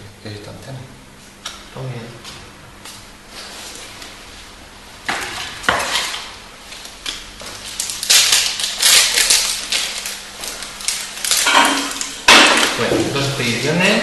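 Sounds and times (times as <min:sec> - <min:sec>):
foil wrapper crinkling: 0:06.1 - 0:14.0.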